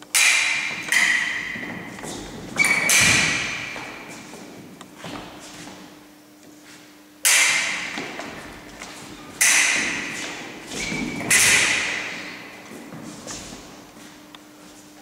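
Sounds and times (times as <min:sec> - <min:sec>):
fencing blade strikes echoing: 0:00.1 - 0:04.5, 0:07.2 - 0:13.7.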